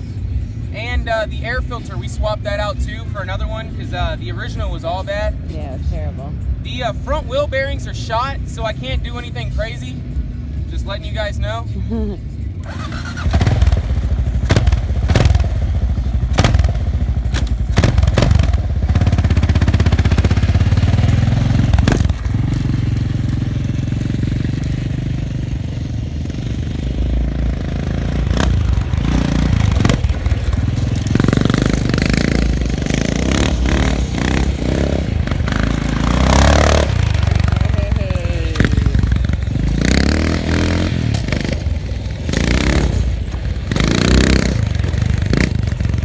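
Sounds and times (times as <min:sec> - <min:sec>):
quad engine revving: 0:12.0 - 0:46.0.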